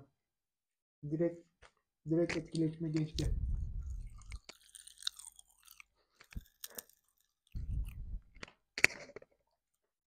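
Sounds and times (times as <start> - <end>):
popping candy crackling: 4.0 - 9.1.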